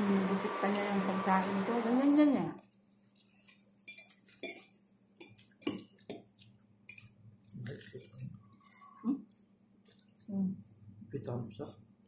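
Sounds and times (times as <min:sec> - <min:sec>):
fork scraping ceramic plate: 0:03.2 - 0:04.8.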